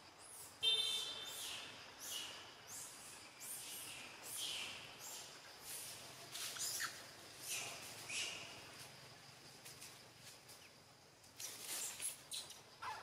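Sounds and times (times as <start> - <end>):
animal chirps and squeaks: 6.6 - 8.3, 11.4 - 13.0.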